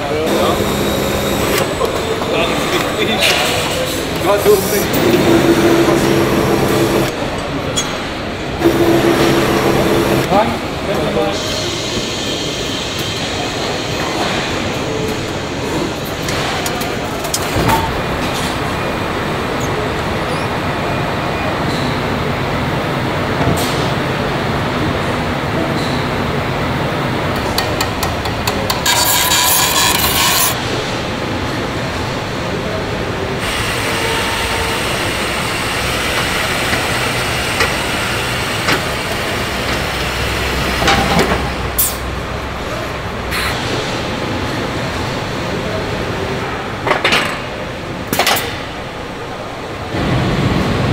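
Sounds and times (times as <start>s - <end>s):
machinery rumble: 0.0s - 25.6s.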